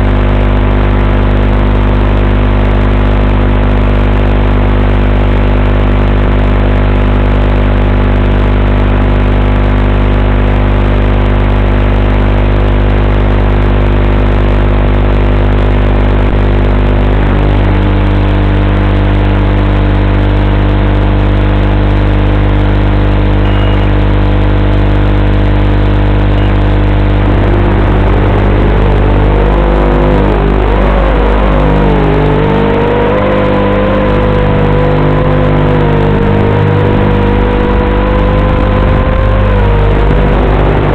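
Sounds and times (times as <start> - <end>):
drone motors whirring: 15.1 - 19.7, 22.9 - 40.9.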